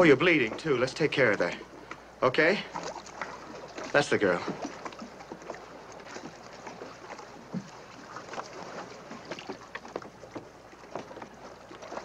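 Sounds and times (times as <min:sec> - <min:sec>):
water: 0:00.0 - 0:12.0
wind: 0:00.0 - 0:12.0.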